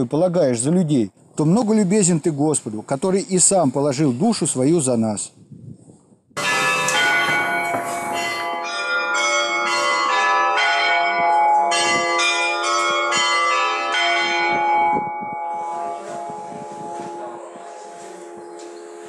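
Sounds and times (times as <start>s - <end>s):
church bells ringing a peal: 6.4s - 19.0s.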